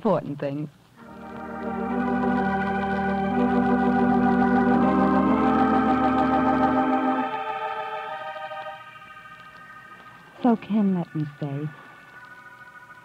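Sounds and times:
organ chords: 0:01.0 - 0:13.0.

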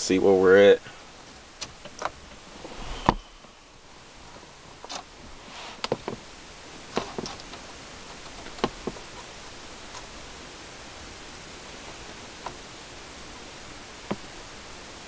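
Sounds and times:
steady hiss: 0:00.0 - 0:15.0
wiring harness clicks and knocks: 0:06.9 - 0:09.1.

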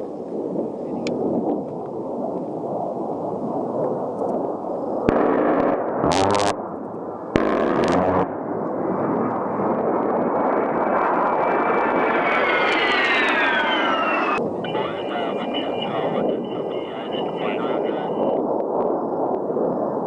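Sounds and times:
jet engines whining: 0:10.0 - 0:18.4
low rush: 0:10.9 - 0:18.4.

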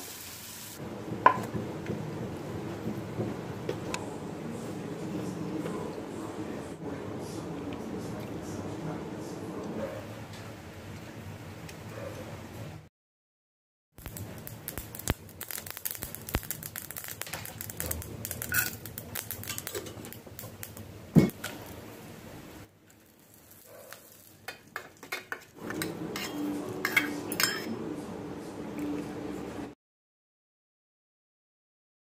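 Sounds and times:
seeds crackling in hot oil: 0:14.0 - 0:26.3.

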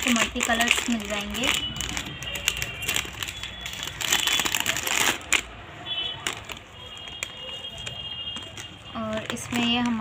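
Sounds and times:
packaging crinkling and clicking: 0:00.0 - 0:05.5, 0:06.2 - 0:10.0.

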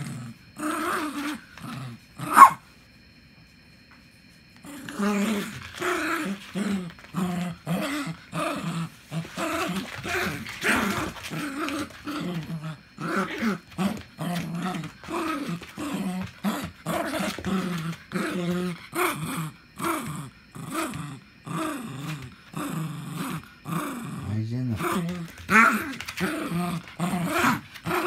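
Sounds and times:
dog play-growling: 0:00.0 - 0:02.6, 0:04.6 - 0:28.0.

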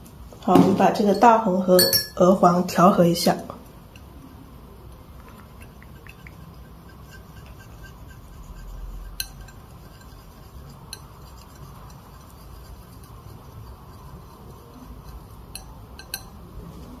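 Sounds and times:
brush clinking against dish: 0:00.9 - 0:02.4, 0:05.2 - 0:16.6
paintbrush scraping dish: 0:04.0 - 0:17.0.

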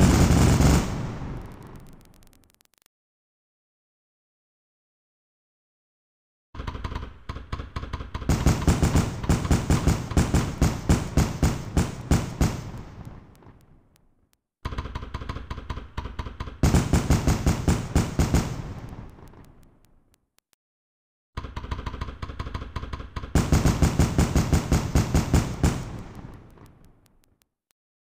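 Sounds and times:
fireworks bangs in rapid volleys: 0:00.0 - 0:02.6, 0:08.2 - 0:13.9, 0:16.6 - 0:19.8, 0:23.3 - 0:27.1.

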